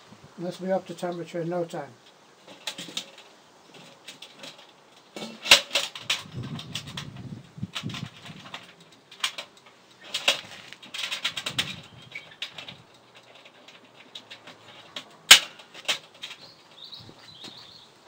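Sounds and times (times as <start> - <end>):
fish shifted on metal grill: 2.5 - 16.9.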